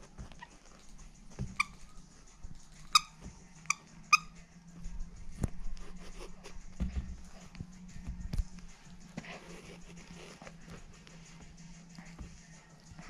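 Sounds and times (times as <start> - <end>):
squeaky dog toy squeaks: 1.5 - 2.0, 2.7 - 4.4
soft thump: 6.8 - 7.2.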